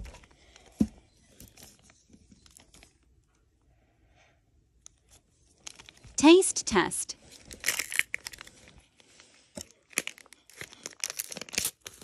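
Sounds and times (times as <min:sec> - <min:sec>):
paper wrapper rustling: 0:05.5 - 0:06.2, 0:07.3 - 0:12.0.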